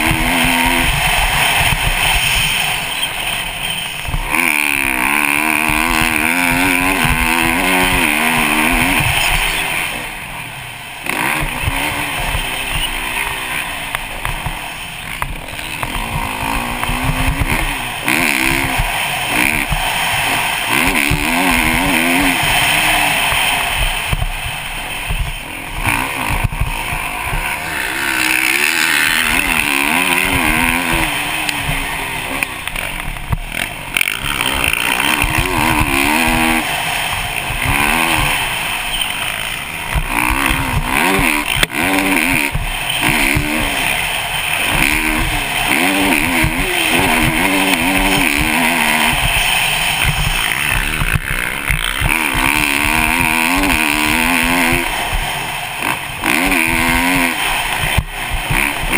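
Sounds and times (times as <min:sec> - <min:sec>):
dirt bike engine revving: 0:00.0 - 0:58.9
sharp knocks: 0:44.6 - 0:55.3.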